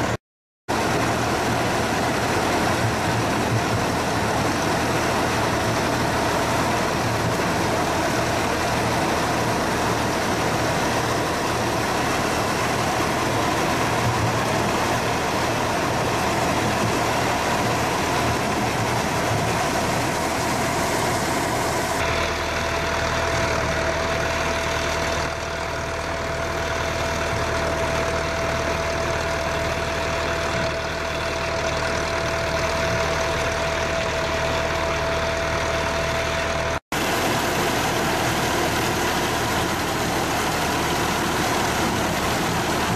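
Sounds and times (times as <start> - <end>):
tractor engine running: 0.0 - 42.9
machine whine: 0.8 - 22.5.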